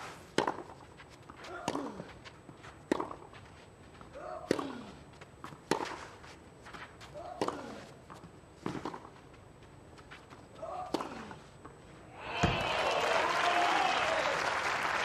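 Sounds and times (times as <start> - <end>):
racket hitting tennis ball: 0.0 - 2.1, 2.9 - 3.3, 4.4 - 6.2, 7.3 - 7.9, 8.6 - 9.1, 10.8 - 11.4.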